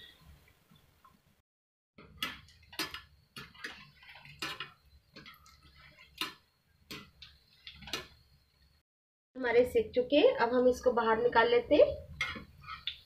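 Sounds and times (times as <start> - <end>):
hot oil sizzling: 2.0 - 8.4.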